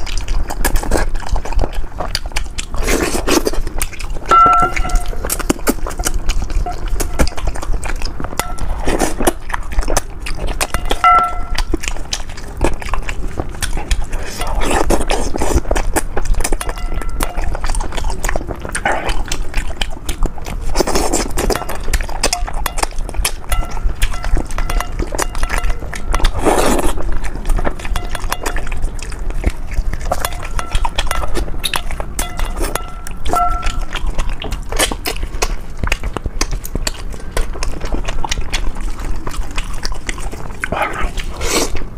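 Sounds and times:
person chewing and slurping: 0.0 - 41.9.

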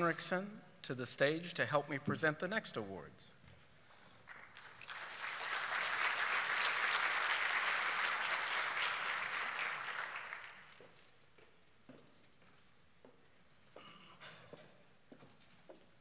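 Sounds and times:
audience applauding: 4.2 - 10.9.

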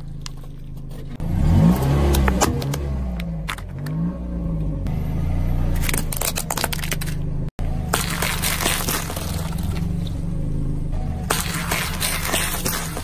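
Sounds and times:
car engine low hum: 0.0 - 13.0
tyre crushing objects: 7.8 - 10.2, 11.2 - 13.0.

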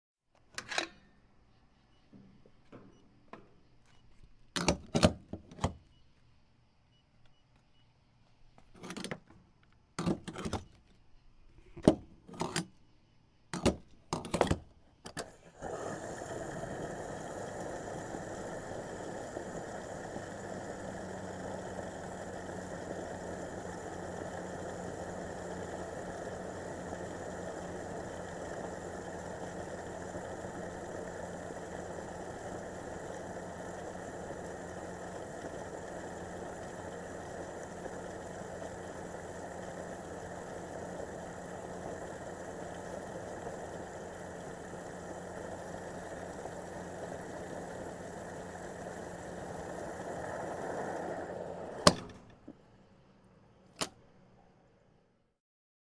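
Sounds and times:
pump clicks and clunks: 0.3 - 1.1, 2.1 - 5.8, 8.7 - 9.4, 10.0 - 10.8, 11.8 - 12.7, 13.5 - 22.4, 51.8 - 52.6, 53.7 - 54.0
low steady hum: 14.7 - 55.0
fuel pump rushing hum: 15.2 - 52.6.

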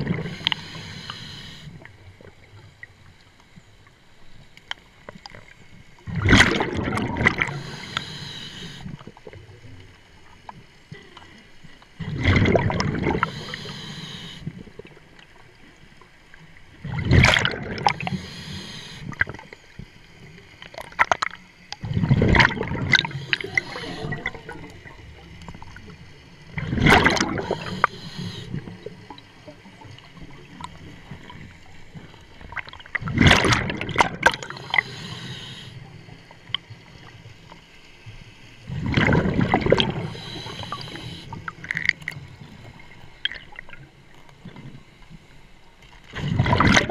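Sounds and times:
exhaled bubbles gurgling: 0.0 - 2.6, 6.0 - 9.8, 12.0 - 15.2, 16.8 - 19.5, 20.7 - 36.2, 38.6 - 44.0, 46.1 - 46.9
regulator hiss: 0.2 - 1.8, 7.4 - 8.9, 13.2 - 14.5, 18.0 - 19.2, 23.0 - 24.3, 27.4 - 28.7, 34.5 - 35.9, 40.0 - 41.4.

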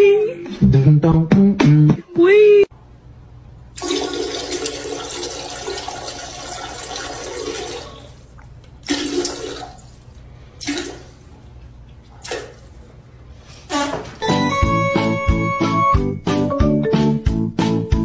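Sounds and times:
toilet flushing: 3.7 - 11.4.

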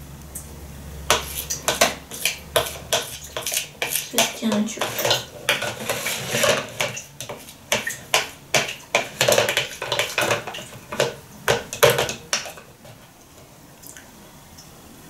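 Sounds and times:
spoon scraping and tapping metal: 1.1 - 13.1.

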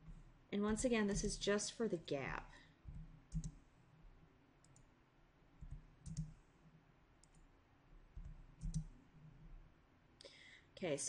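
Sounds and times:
computer mouse clicking: 2.9 - 3.6, 4.6 - 4.9, 5.6 - 6.4, 7.2 - 7.5, 8.1 - 9.4.

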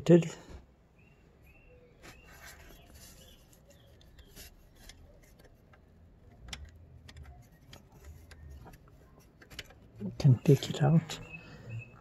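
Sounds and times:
metallic clicks and rubbing: 2.0 - 11.0.

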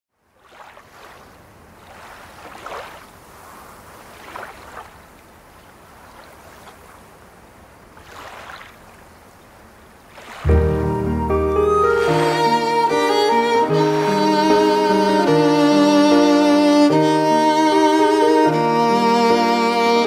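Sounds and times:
water waves washing against shore: 0.3 - 14.7.

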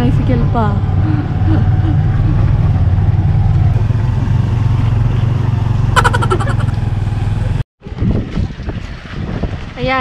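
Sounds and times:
vehicle engine running: 0.0 - 7.6.

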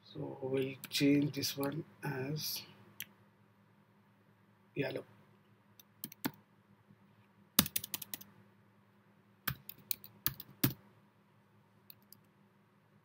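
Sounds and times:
computer keyboard typing: 6.0 - 6.4, 7.6 - 8.3, 9.5 - 10.8.

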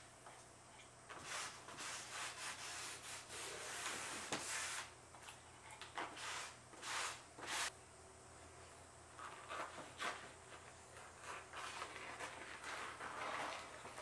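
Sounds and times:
wet rag rubbing paper: 10.9 - 14.0.

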